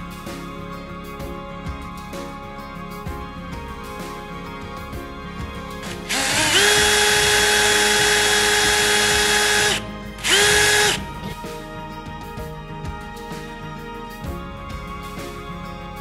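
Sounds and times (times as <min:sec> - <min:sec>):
electric drill whining into wood: 0:05.8 - 0:11.4.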